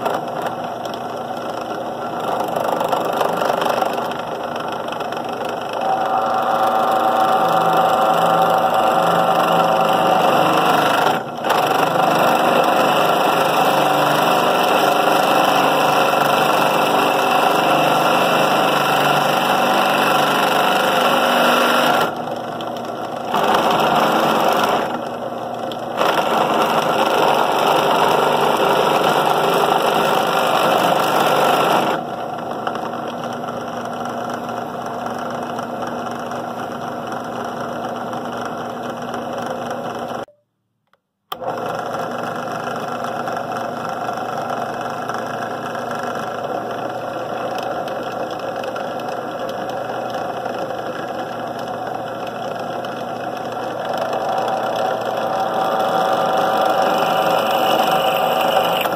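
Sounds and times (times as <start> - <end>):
drill press motor hum: 0.0 - 40.3, 41.3 - 58.9
drill bit cutting steel: 5.7 - 22.2, 23.3 - 25.1, 26.0 - 32.0, 53.6 - 58.9.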